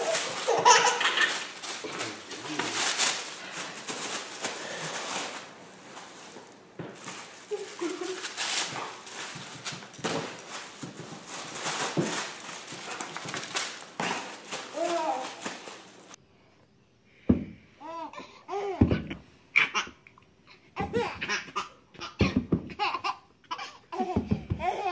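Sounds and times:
paper rustling: 0.0 - 16.2.

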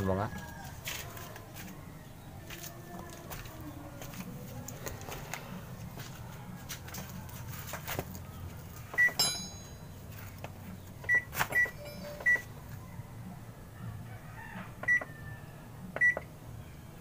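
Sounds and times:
washing machine beeps: 9.0 - 9.4, 11.0 - 12.5, 14.8 - 15.1, 16.0 - 16.3.

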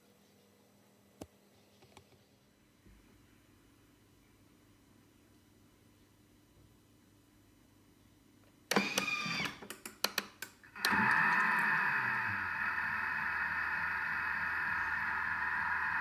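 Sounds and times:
kitchen machine whirring: 10.7 - 16.0.

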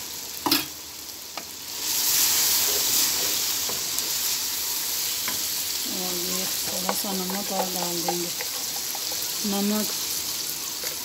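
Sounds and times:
chicken sizzling in hot oil: 0.0 - 11.0
wooden spoon stirring: 6.2 - 10.0.

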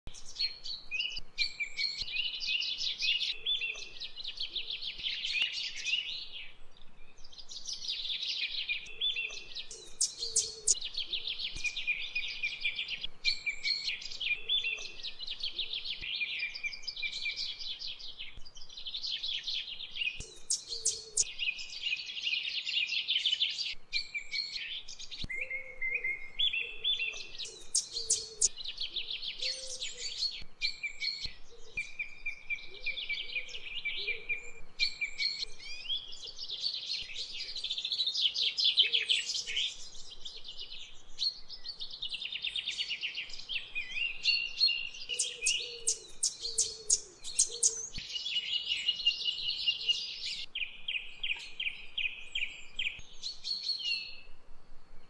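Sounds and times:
birds singing: 0.1 - 54.4.

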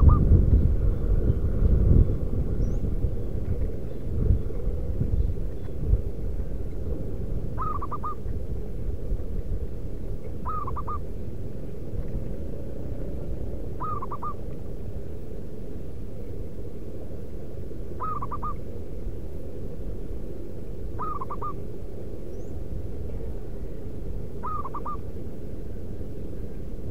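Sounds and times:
dove cooing: 0.0 - 0.4, 7.5 - 8.3, 10.4 - 11.1, 13.7 - 14.5, 18.0 - 18.6, 21.0 - 21.6, 24.4 - 25.1
low background rumble: 0.0 - 26.9.

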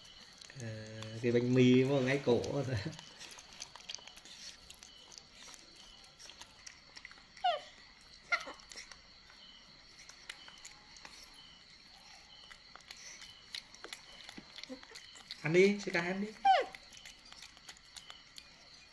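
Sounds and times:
baby monkey squeaking: 8.3 - 8.6, 16.3 - 17.2.

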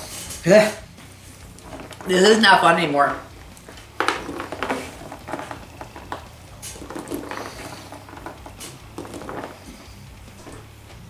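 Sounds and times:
fruit snacks knocking on tabletop: 3.8 - 9.8.

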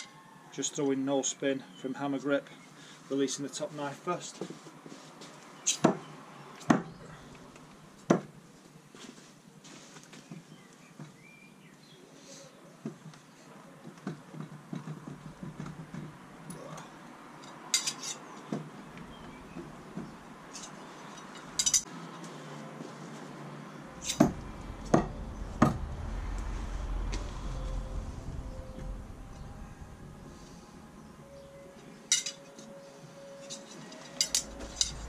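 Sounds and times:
metal knives clinking: 17.4 - 18.3, 20.5 - 21.9, 32.1 - 32.7, 33.4 - 35.0.

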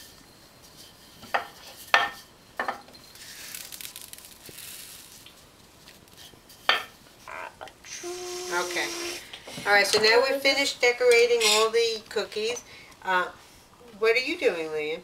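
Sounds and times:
sprinkles scattered on dough: 3.2 - 6.3.

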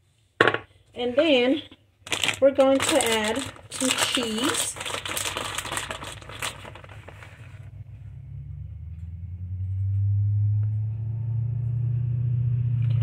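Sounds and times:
plastic bag crinkling: 2.0 - 7.7
low droning hum: 2.2 - 13.0.

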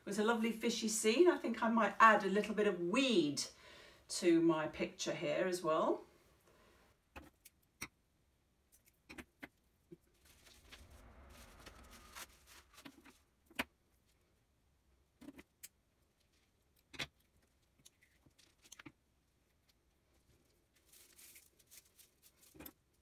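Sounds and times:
soft rustle: 10.0 - 13.3, 16.2 - 23.0.

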